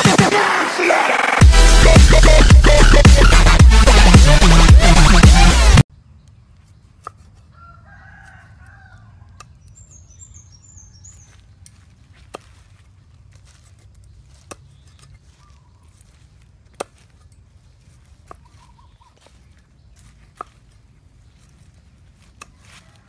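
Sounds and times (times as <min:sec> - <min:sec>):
small birds chirping: 0:05.9 - 0:23.0
rooster crowing: 0:07.5 - 0:09.4, 0:22.5 - 0:23.0.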